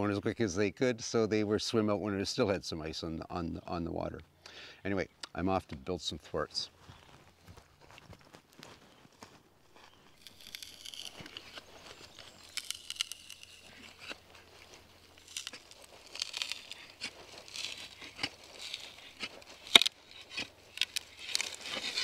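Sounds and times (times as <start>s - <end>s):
wood shavings rustling: 10.1s - 22.0s.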